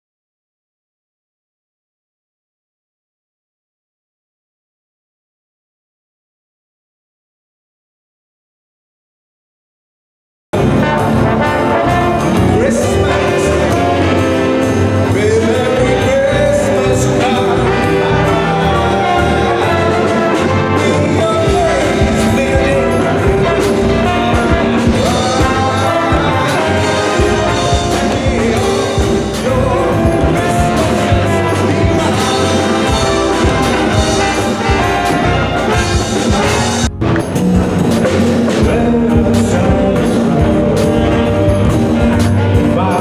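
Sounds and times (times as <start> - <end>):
big band playing jazz: 10.6 - 43.0
man singing: 10.6 - 43.0.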